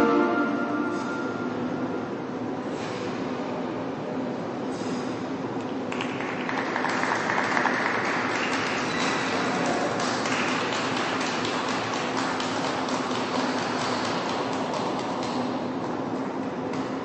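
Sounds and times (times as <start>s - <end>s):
music: 0.0s - 1.4s
audience applause: 5.9s - 15.4s.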